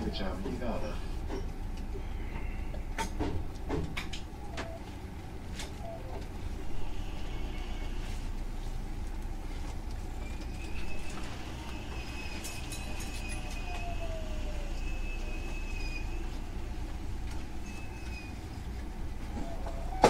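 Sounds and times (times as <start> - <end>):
train rumble: 0.0 - 20.0
high brake squeal: 6.6 - 8.0, 10.2 - 16.8, 17.4 - 18.7.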